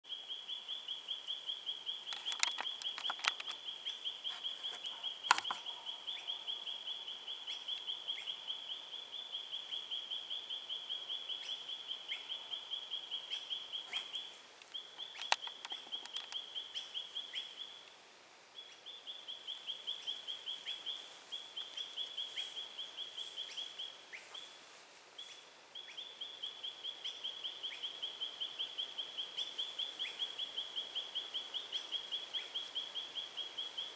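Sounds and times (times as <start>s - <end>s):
sharp clicks and knocks: 2.1s - 3.6s, 15.1s - 16.4s.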